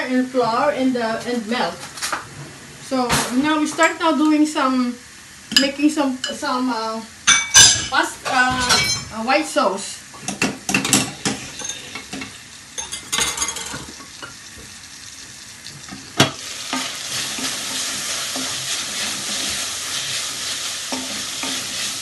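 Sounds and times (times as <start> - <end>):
bacon sizzling in a pan: 2.9 - 22.0
wooden spoon stirring: 16.4 - 22.0.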